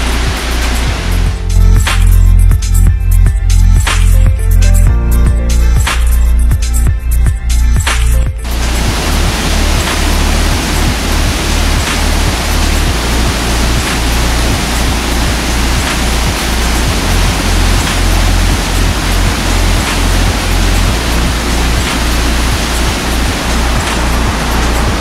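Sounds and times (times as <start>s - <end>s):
waterfall pouring: 0.0s - 1.4s, 8.4s - 25.0s.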